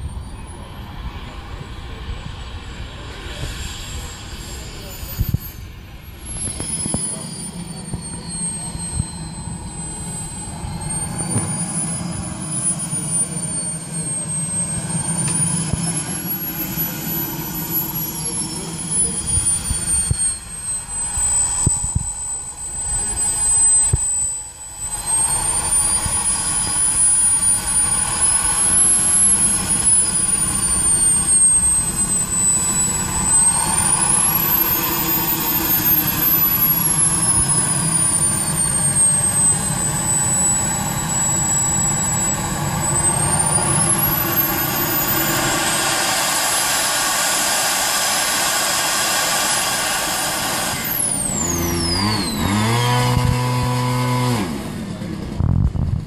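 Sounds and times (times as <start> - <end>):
jet turbine whine: 0.0 - 56.0
low humming tone: 0.0 - 56.0.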